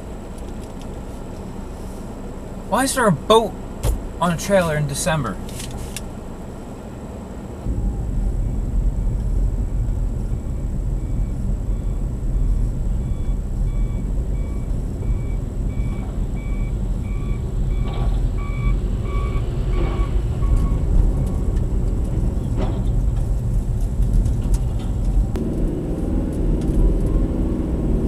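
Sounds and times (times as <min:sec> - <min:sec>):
reversing alarm beeping: 0:10.5 - 0:21.5.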